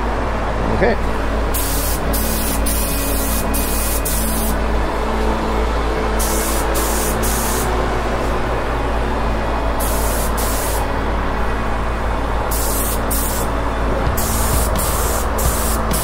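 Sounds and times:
exhaust fan humming: 0.0s - 16.0s
spray gun hissing: 1.5s - 4.6s, 6.2s - 7.7s, 9.8s - 10.9s, 12.5s - 16.0s.

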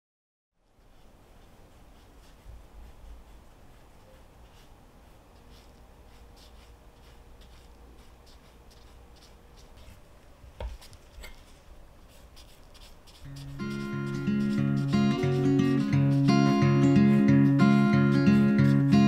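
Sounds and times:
knife slicing meat: 4.4s - 10.0s, 10.6s - 19.0s
knife tapping cutting board: 10.6s - 10.8s.

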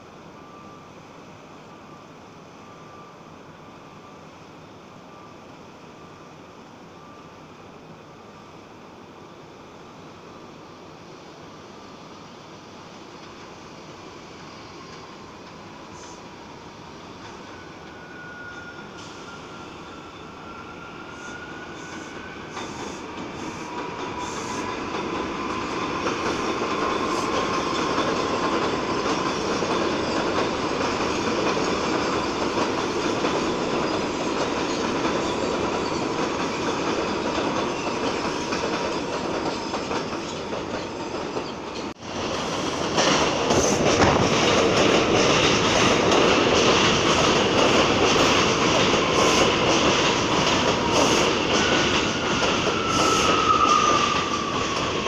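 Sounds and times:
faint high whine: 0.0s - 22.8s
train wheels rumbling on rails: 12.3s - 55.0s
train clicking: 21.8s - 55.0s.

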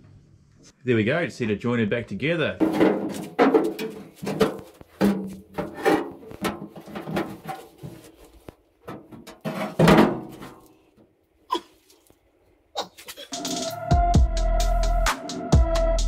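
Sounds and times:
aluminium boat hull knocks and scrapes: 2.6s - 10.7s.

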